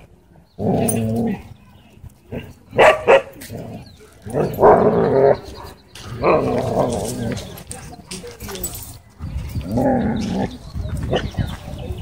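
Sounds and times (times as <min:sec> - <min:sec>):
dogs barking sharply: 0:02.8 - 0:03.4.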